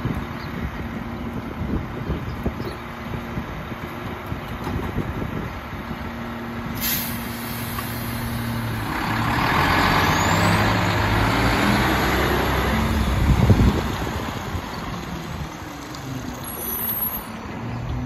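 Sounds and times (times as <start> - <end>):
air brakes hissing: 6.8 - 8.8
truck engine revving: 6.8 - 15.5.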